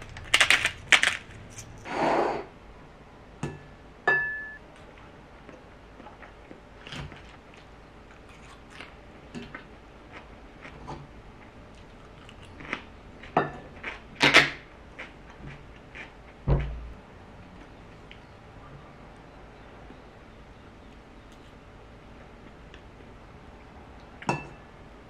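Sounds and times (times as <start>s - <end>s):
chewing: 5.5s - 14.4s, 15.0s - 16.4s.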